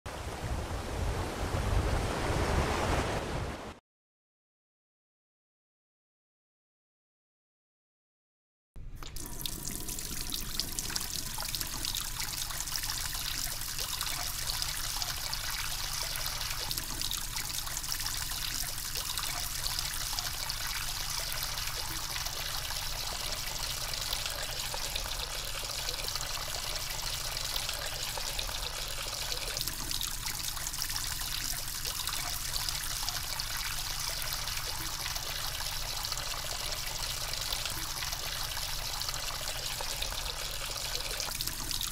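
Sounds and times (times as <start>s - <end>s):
tap water running into sink: 9.0s - 41.9s.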